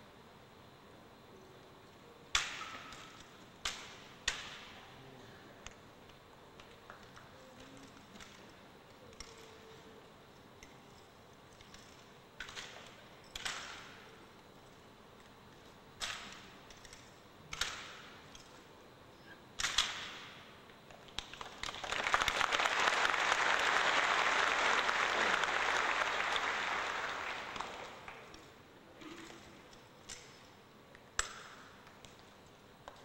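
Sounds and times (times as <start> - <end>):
audience applause: 21.5 - 28.3.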